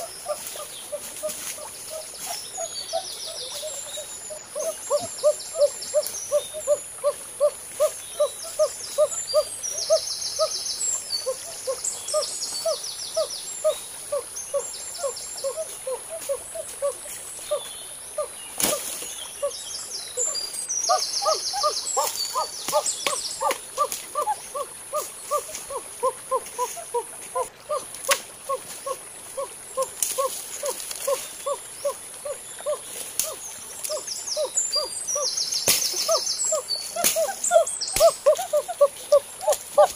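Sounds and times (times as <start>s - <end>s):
twittering bird calls: 0.0s - 39.9s
bird hooting: 20.9s - 27.9s.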